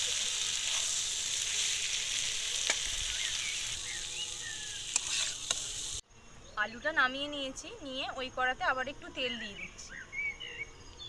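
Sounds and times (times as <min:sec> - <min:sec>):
potatoes sizzling in oil: 0:00.0 - 0:06.0
metal spatula stirring in pan: 0:04.9 - 0:05.9.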